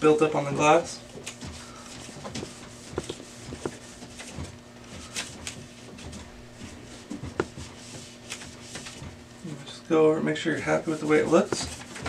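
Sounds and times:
cloth rubbing on glass: 1.4s - 9.3s.

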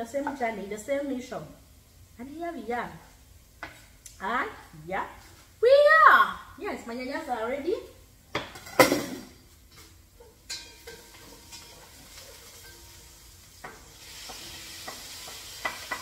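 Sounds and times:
tomatoes sizzling in pot: 0.0s - 6.0s, 6.8s - 16.0s
kitchenware knocks: 8.4s - 9.4s.

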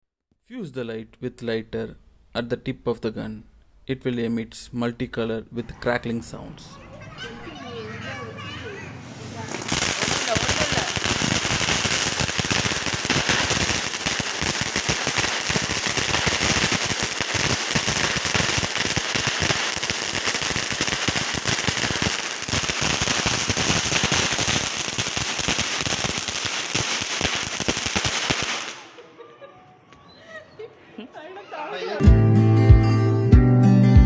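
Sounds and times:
firework crackling: 9.2s - 29.0s.

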